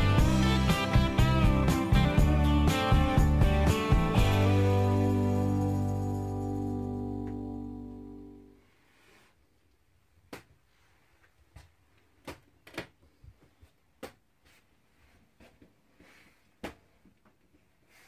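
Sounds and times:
guitar background music: 0.0s - 8.5s.

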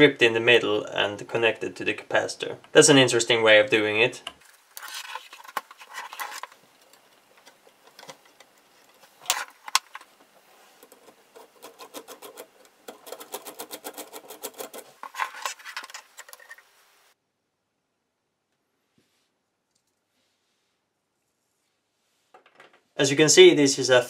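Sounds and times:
screw turning with quick ticks: 10.8s - 16.6s
screwdriver clicks and scrapes on metal: 10.8s - 16.6s.

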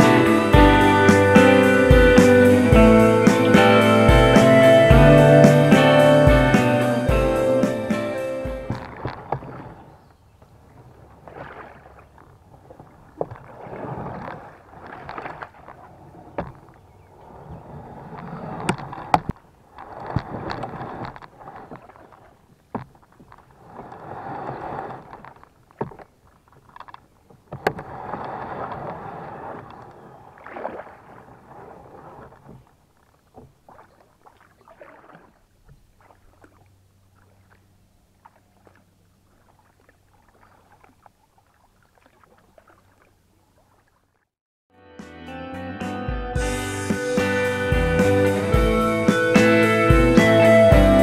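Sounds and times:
paddling water sounds: 0.0s - 44.4s
branches knocking on hull: 8.6s - 9.8s, 11.3s - 16.8s, 18.6s - 23.4s, 25.1s - 27.9s
kayak hull scraping over logs: 8.7s - 36.6s.

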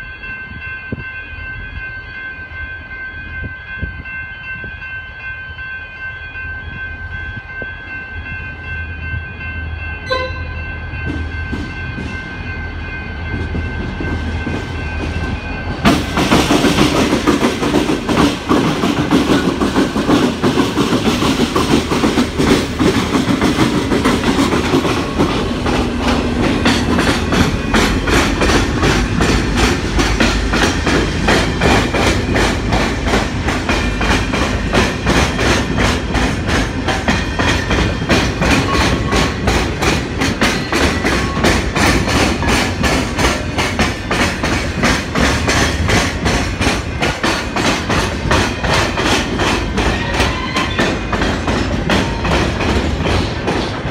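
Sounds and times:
wheel clatter over rail joints: 13.4s - 53.9s.

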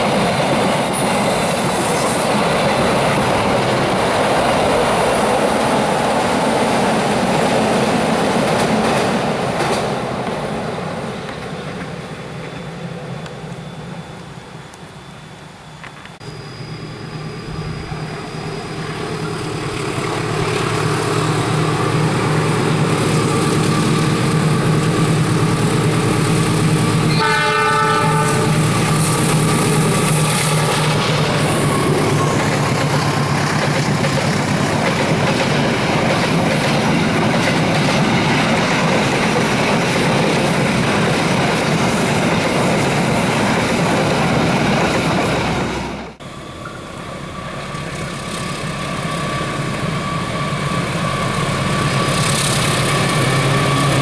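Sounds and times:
locomotive engine drone: 0.0s - 38.5s, 42.3s - 54.0s
train cars rumbling over bridge: 0.0s - 54.0s
train horn blast: 27.0s - 28.8s.

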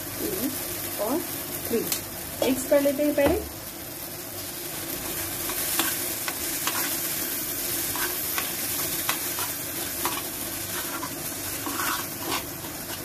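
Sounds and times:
oil sizzling: 0.0s - 13.0s
spoon scraping metal pan: 7.9s - 13.0s.

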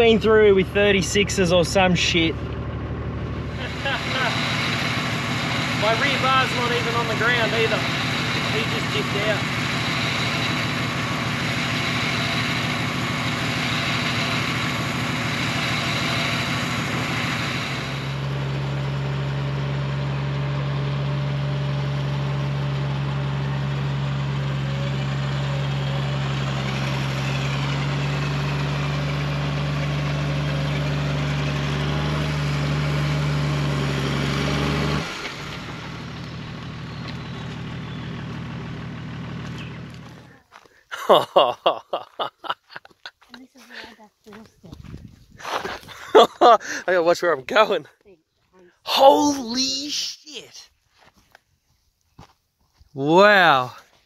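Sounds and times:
engine working hard under load: 0.0s - 42.8s, 44.8s - 47.7s.

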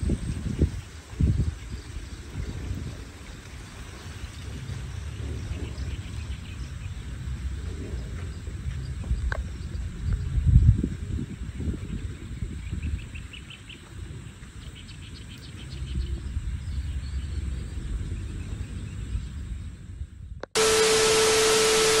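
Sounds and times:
wind buffeting microphone: 0.0s - 20.4s
static hiss: 20.5s - 22.0s.

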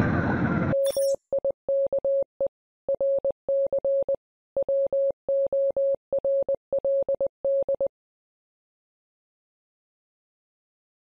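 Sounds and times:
electronic morse code beeps: 0.8s - 7.9s.

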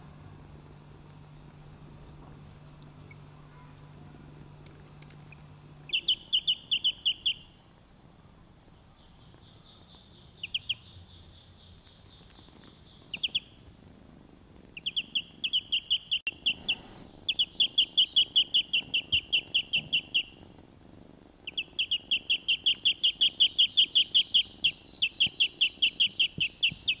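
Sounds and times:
duckling peeping: 2.8s - 3.9s, 4.5s - 7.6s, 9.0s - 13.6s, 14.7s - 20.5s, 21.4s - 27.0s.

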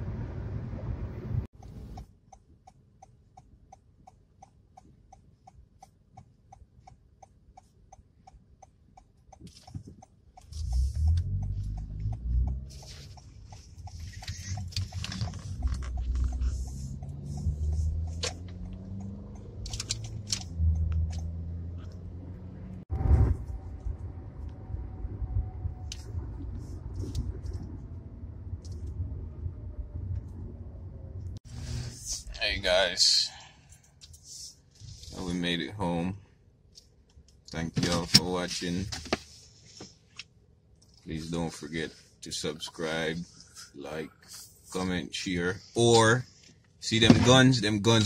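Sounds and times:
engine and road rumble: 0.0s - 48.0s
turn signal ticking: 1.5s - 22.1s.

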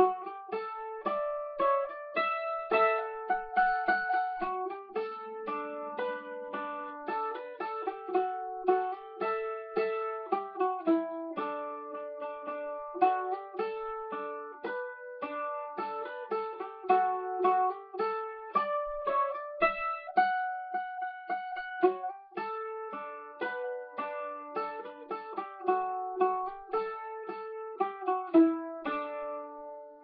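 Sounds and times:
mandolin melody: 0.0s - 30.0s.

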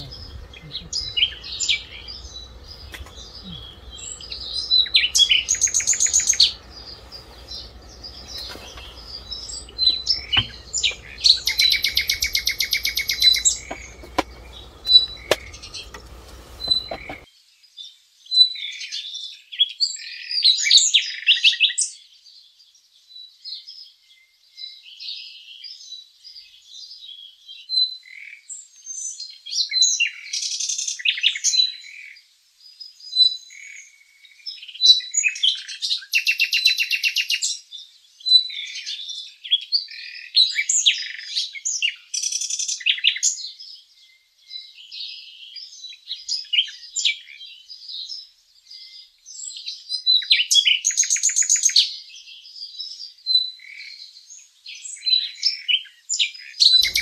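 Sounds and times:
bird trills: 0.0s - 17.2s, 56.8s - 57.0s
low background rumble: 0.0s - 17.2s
small birds chirping: 0.0s - 17.3s, 44.0s - 57.0s.

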